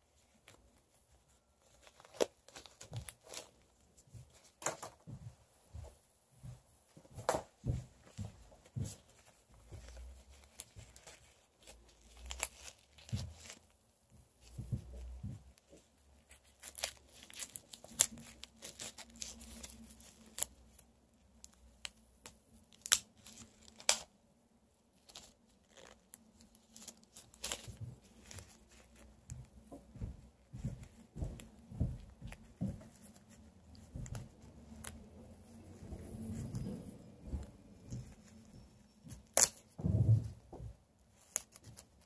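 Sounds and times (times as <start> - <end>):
rubber balloons rustling and snapping: 1.6 - 5.1, 8.6 - 24.1, 25.0 - 35.0, 39.1 - 42.0.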